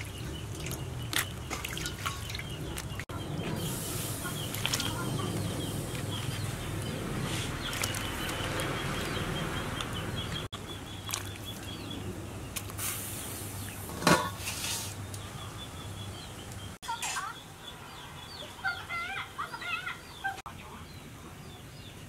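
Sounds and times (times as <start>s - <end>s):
water boiling in metal pot: 0.0s - 15.0s.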